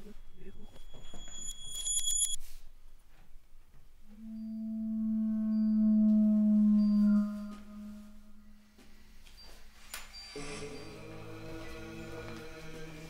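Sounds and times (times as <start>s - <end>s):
high bright tinkling tones: 0.0s - 2.4s, 6.7s - 13.0s
low sustained ringing tone: 0.0s - 2.5s, 4.1s - 13.0s.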